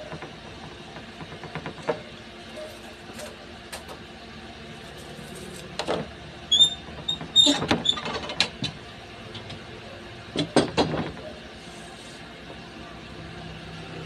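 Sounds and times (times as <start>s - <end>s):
short high squeaks: 6.5s - 8.0s.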